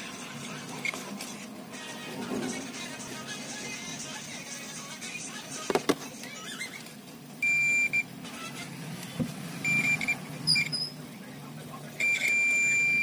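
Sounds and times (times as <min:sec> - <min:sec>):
multimeter continuity beeps: 0:07.4 - 0:08.1, 0:09.6 - 0:11.0, 0:12.0 - 0:13.0.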